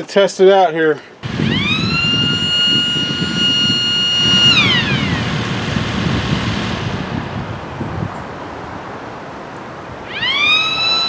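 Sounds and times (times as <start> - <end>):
electric siren wailing: 1.2 - 8.1, 10.0 - 11.0.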